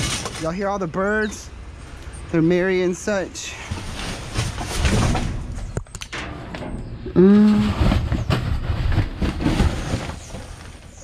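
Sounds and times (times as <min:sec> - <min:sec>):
cardboard and plastic bags rustling: 0:03.5 - 0:05.8, 0:07.6 - 0:11.0.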